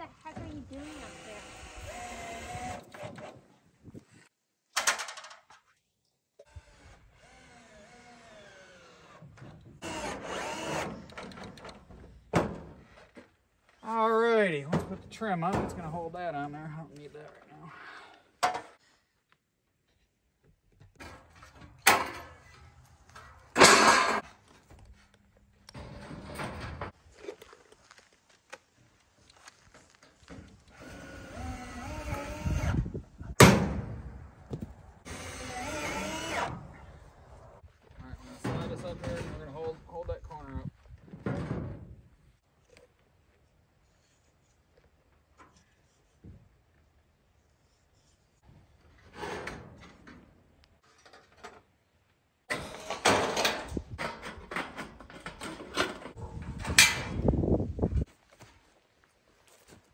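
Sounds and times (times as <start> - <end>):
cordless drill driving screw: 0.8 - 3.4, 9.8 - 11.4, 30.7 - 32.8, 35.1 - 36.5
metal roofing sheet scraping and rattling: 21.0 - 24.4, 25.8 - 27.0, 48.9 - 51.5, 52.5 - 57.2.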